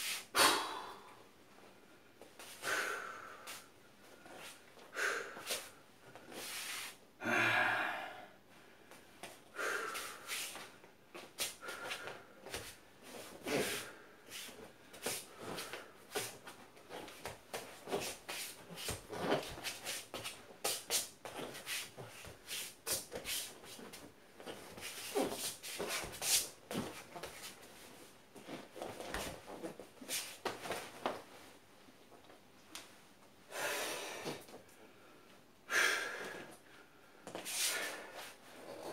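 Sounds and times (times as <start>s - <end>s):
man's sharp forceful breaths: 9.5s - 10.7s.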